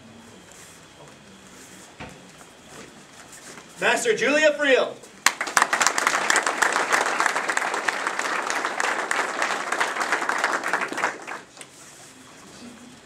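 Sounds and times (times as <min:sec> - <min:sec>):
audience applauding: 0:05.2 - 0:11.5.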